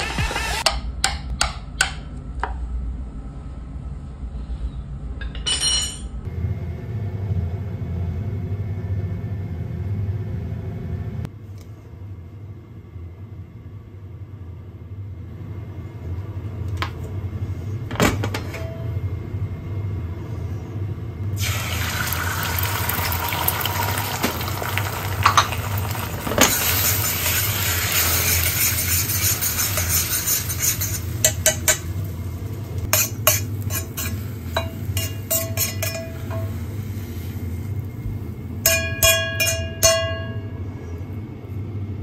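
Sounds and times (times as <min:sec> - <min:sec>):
stovetop smoker humming: 0:00.0 - 0:42.0
egg sizzling in hot oil: 0:21.4 - 0:37.8.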